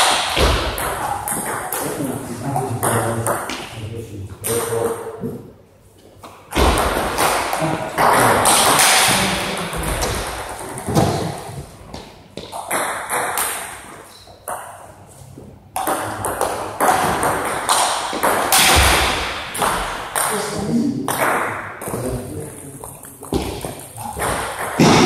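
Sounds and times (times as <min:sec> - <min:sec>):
ball bouncing on table: 0:00.3 - 0:02.0, 0:06.5 - 0:14.8, 0:15.8 - 0:20.4, 0:22.8 - 0:25.0.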